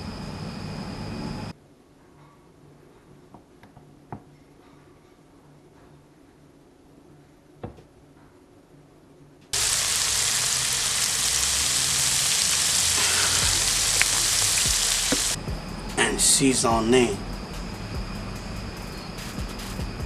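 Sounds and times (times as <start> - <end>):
food sizzling in a frying pan: 9.6 - 15.4.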